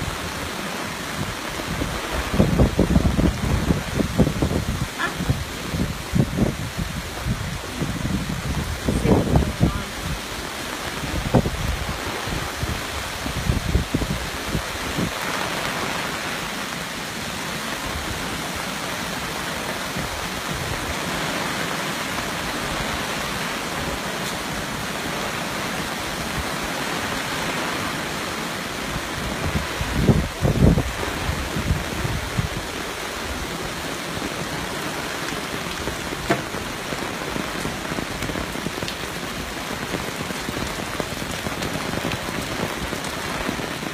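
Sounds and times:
creek rushing: 0:00.0 - 0:43.9
low thumps: 0:36.2 - 0:36.8.

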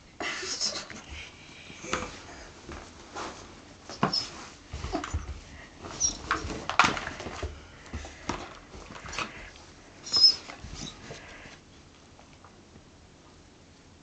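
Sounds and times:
short high squeaks: 0:06.0 - 0:06.2, 0:10.0 - 0:11.0.

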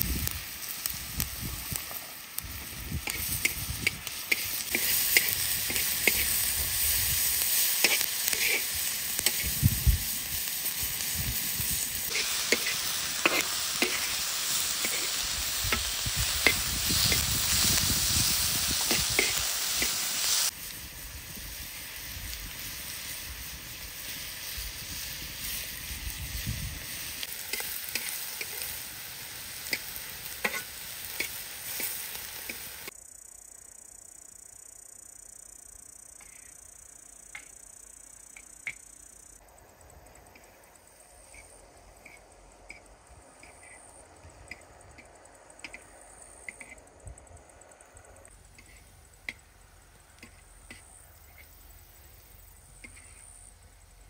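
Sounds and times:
meat and peppers sizzling on griddle: 0:00.0 - 0:33.0, 0:35.2 - 0:47.2, 0:48.0 - 0:54.0
metal spoon scraping on steel: 0:07.8 - 0:09.5.

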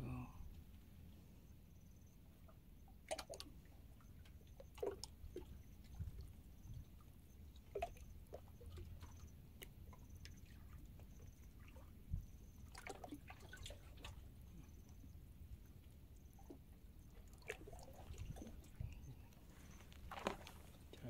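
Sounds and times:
water lapping against rocks: 0:04.3 - 0:14.8, 0:16.4 - 0:21.0.

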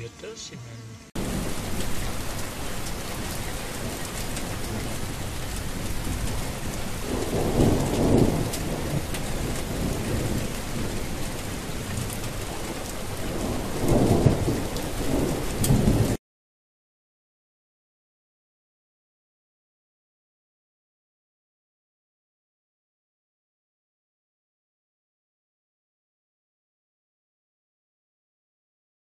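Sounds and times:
heavy rain: 0:01.1 - 0:16.2
thunder rolling: 0:01.2 - 0:16.2.

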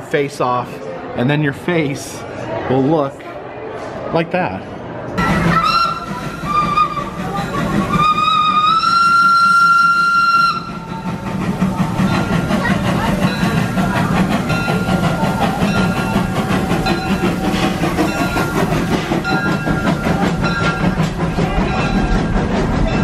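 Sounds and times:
steam locomotive whistle: 0:05.2 - 0:12.4
train rumbling and clattering: 0:05.2 - 0:23.0.

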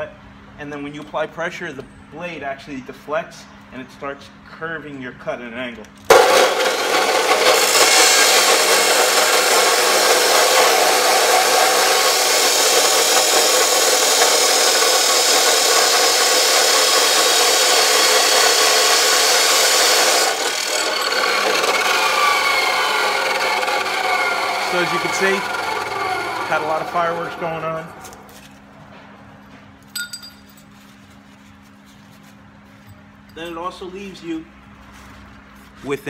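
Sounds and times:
motor winding down whine: 0:06.1 - 0:28.3
cut-off saw grinding steel: 0:06.1 - 0:28.5.

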